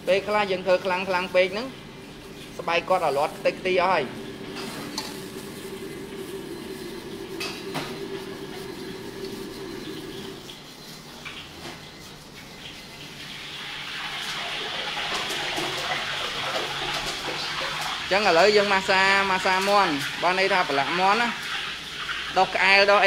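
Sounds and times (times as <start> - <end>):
steady low hum: 0.0 - 10.5.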